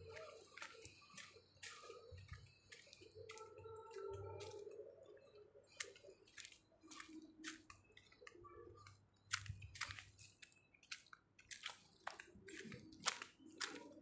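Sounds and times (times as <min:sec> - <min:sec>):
footsteps crunching on dry leaves: 0:00.0 - 0:04.6, 0:09.3 - 0:14.0.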